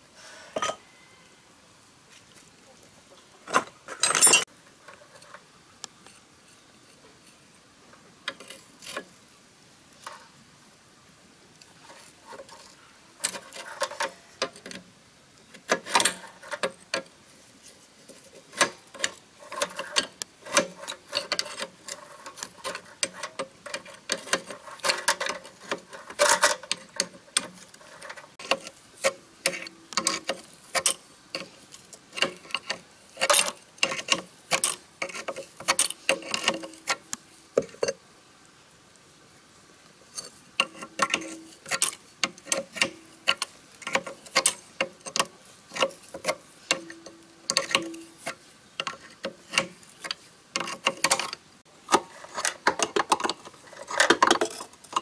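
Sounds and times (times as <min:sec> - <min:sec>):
metal spanner clicking on nuts: 0:04.0 - 0:04.5, 0:18.6 - 0:37.1, 0:40.2 - 0:51.4.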